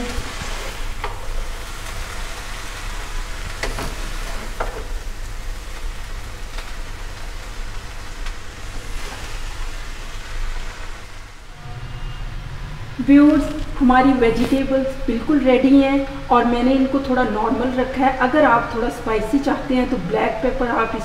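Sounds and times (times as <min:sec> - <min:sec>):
food sizzling in a wok: 0:00.0 - 0:11.5.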